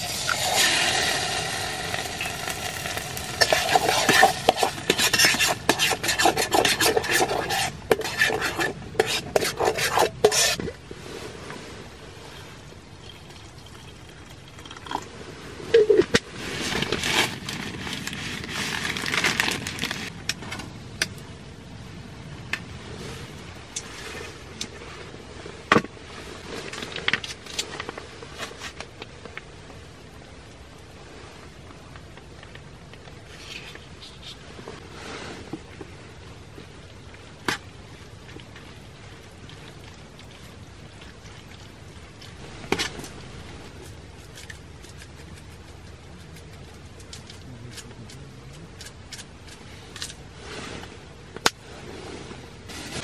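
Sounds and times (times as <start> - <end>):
metal spoon scraping a pot: 0.0 - 10.7
low hiss: 0.0 - 53.0.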